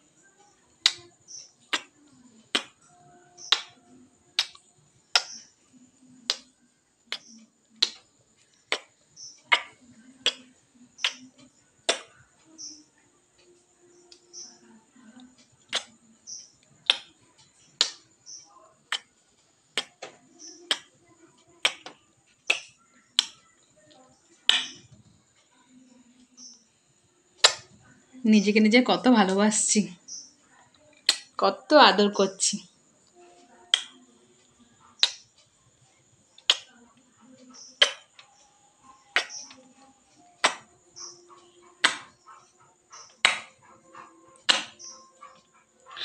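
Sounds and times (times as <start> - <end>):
wet kissing smacks: 15.7 - 16.0, 27.4 - 27.7.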